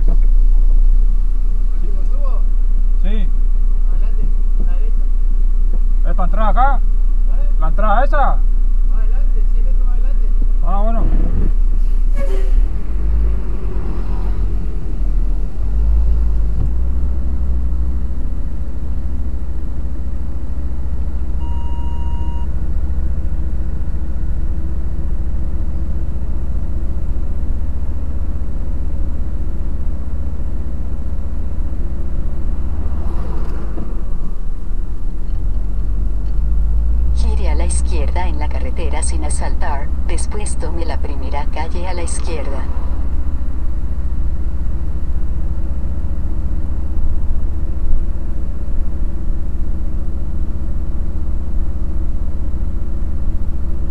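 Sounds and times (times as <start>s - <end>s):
truck engine rumbling: 0.0s - 53.9s
short beep: 21.4s - 22.5s.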